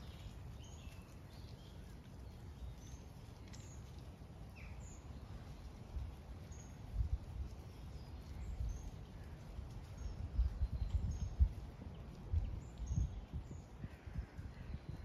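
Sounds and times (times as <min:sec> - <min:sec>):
small birds chirping: 0:00.0 - 0:15.0
wind buffeting microphone: 0:04.5 - 0:15.0.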